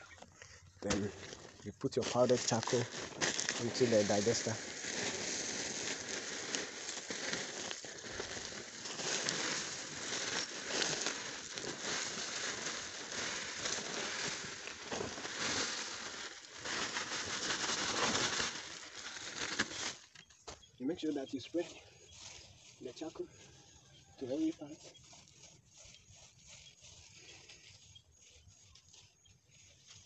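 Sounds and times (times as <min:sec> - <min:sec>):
plastic sack rustling: 0:01.0 - 0:20.2.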